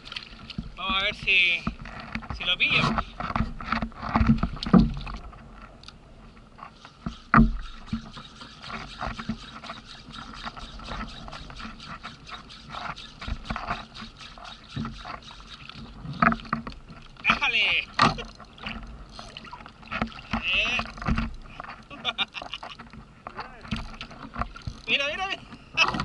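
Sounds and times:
water lapping against hull: 0:00.0 - 0:26.0
spinning reel clicking: 0:06.8 - 0:16.6.

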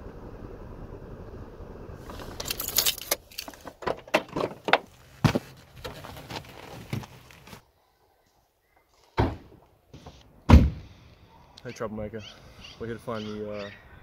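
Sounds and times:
car keys jangling: 0:02.1 - 0:05.1.

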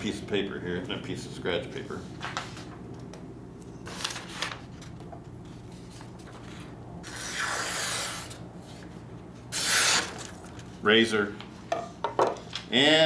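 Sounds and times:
knife slicing through paper: 0:07.0 - 0:08.4.

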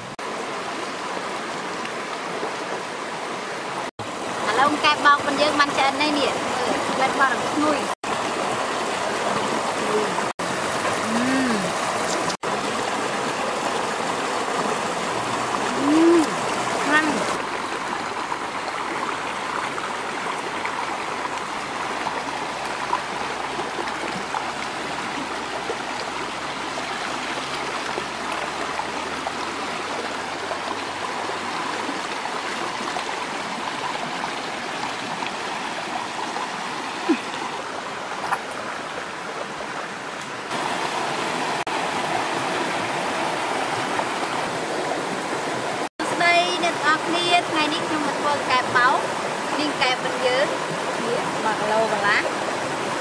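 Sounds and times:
stream splashing over rocks: 0:00.0 - 0:53.0.

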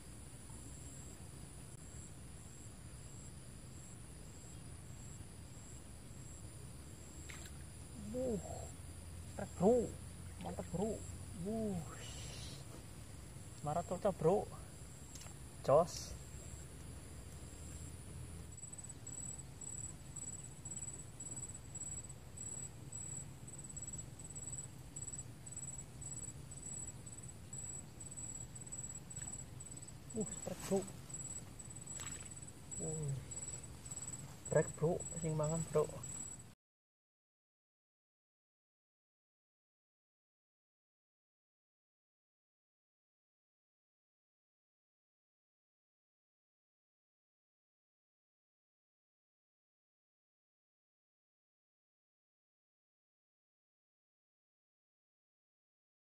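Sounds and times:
insects chirping: 0:00.0 - 0:36.6
low background noise: 0:00.0 - 0:36.6.

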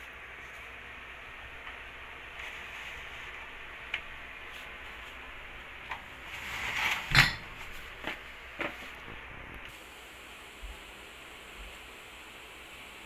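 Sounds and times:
plastic crate scraping: 0:06.1 - 0:09.1
glass bottles clinking: 0:07.1 - 0:07.6.

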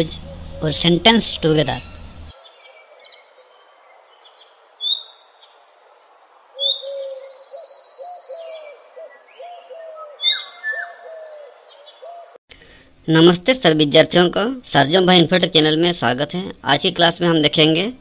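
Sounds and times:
birds chirping and whistling: 0:00.0 - 0:05.6, 0:06.6 - 0:12.4
low hooting bird call: 0:00.0 - 0:12.4.

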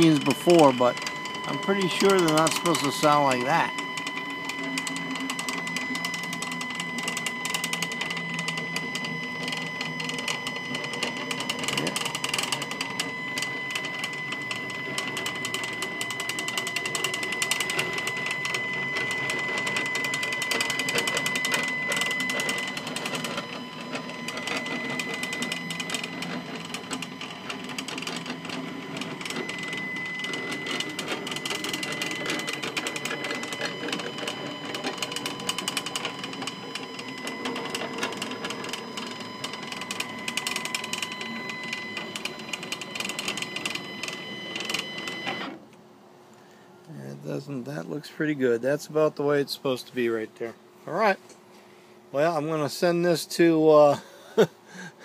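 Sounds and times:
stepper motor whine and rattle: 0:00.0 - 0:45.8.

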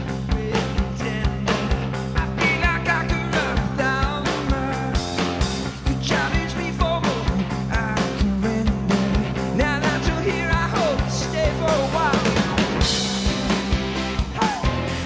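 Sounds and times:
man singing: 0:00.0 - 0:12.9, 0:14.3 - 0:14.9
bass guitar: 0:00.0 - 0:15.0
drums with steady beat: 0:00.0 - 0:15.0
keyboard: 0:00.0 - 0:15.0.

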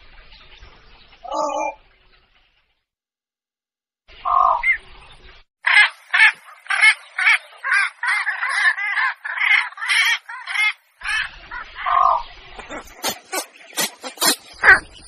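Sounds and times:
harsh rasping bird lure squawks: 0:05.7 - 0:15.0.

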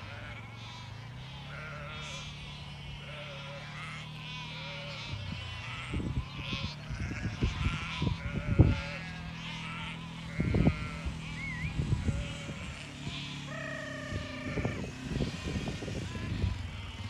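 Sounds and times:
sheep bleating: 0:00.0 - 0:17.0
wind buffeting microphone: 0:05.1 - 0:09.2, 0:10.2 - 0:17.0.

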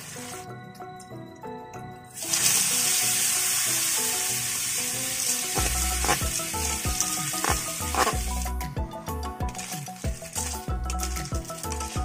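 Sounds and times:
snails sizzling in hot oil: 0:02.2 - 0:08.5.

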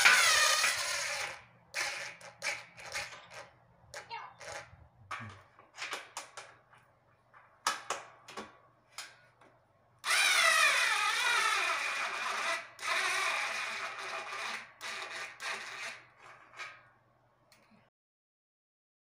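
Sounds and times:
cordless screwdriver motor whirring: 0:10.1 - 0:14.0.

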